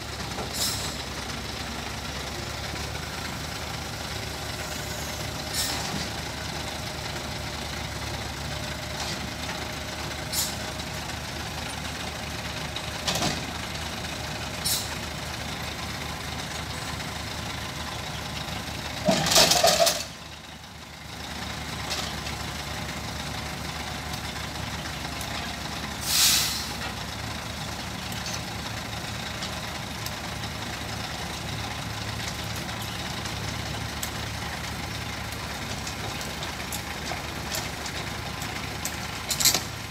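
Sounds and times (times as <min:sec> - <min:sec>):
diesel engine running: 0:00.0 - 0:39.9
loud hydraulic hisses: 0:26.0 - 0:26.8.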